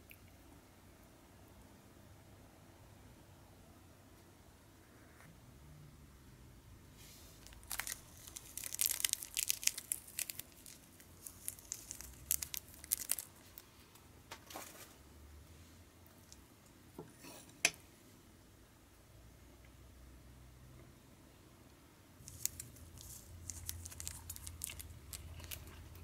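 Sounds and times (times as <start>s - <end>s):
plastic packet crinkling: 7.4s - 13.7s, 22.2s - 26.0s.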